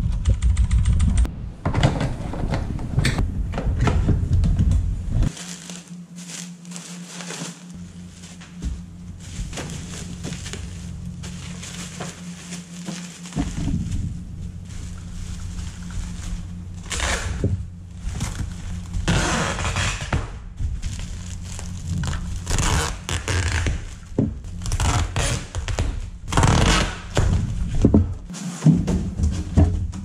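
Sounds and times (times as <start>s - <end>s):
bubble wrap crinkling: 5.3s - 27.6s.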